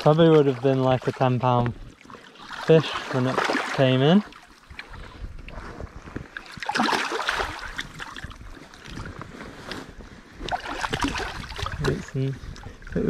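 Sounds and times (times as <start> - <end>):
water sloshing: 0.0 - 13.0
fish splashing in water: 2.0 - 5.1, 6.3 - 9.0, 10.4 - 12.0.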